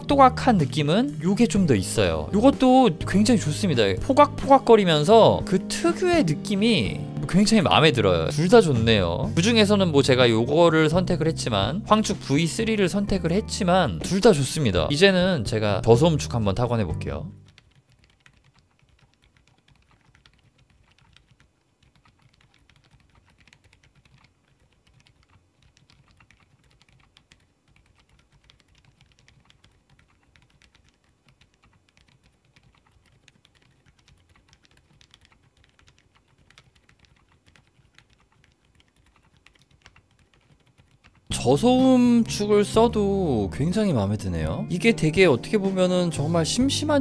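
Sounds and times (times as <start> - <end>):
faint keyboard keystroke clicks: 17.4 - 41.3.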